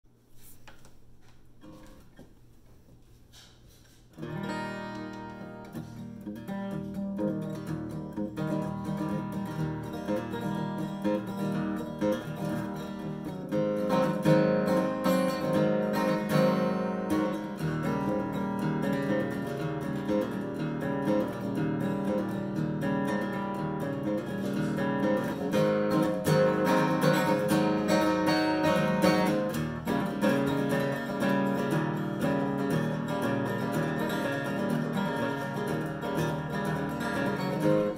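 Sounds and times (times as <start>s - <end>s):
acoustic guitar strumming: 0.4s - 2.3s, 3.3s - 37.9s.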